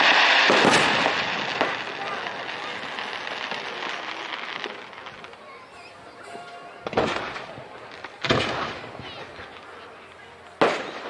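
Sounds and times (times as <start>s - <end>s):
fireworks shell burst: 0.0s - 5.2s
fireworks crackling: 0.0s - 11.0s
rolling echo: 0.0s - 11.0s.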